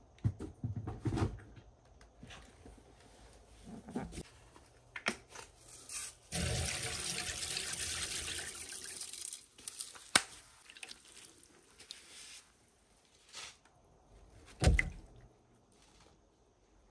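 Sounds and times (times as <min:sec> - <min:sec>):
water splashing into tub: 0:06.4 - 0:12.0, 0:14.6 - 0:15.2
water dripping and trickling: 0:06.4 - 0:12.1.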